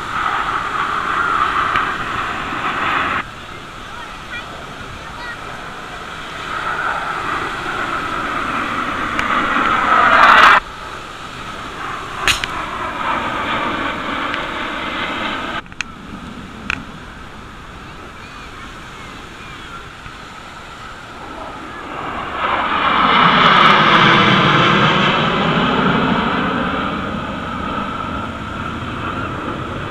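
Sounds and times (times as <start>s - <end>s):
jet aircraft flying past: 0.0s - 29.9s.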